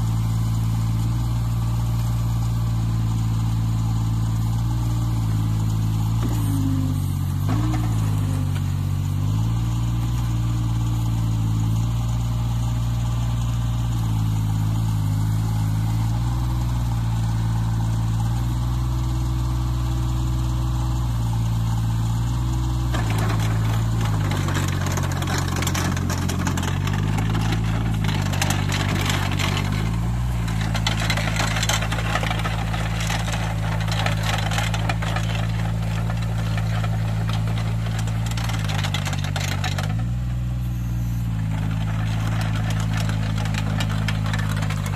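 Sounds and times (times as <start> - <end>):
excavator diesel engine: 0.0 - 44.9
machine and soil clattering: 3.0 - 44.9.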